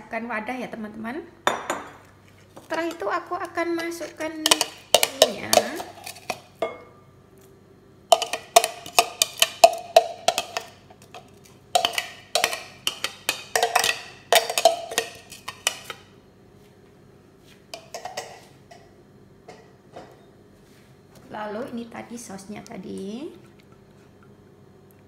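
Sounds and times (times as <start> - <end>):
metal spoon tapping plastic jar: 4.4 - 5.9, 8.1 - 10.7, 11.8 - 15.8.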